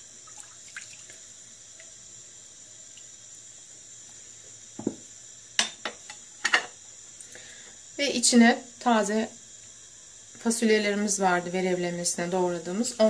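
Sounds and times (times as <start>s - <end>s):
dull knock: 4.8s - 5.0s.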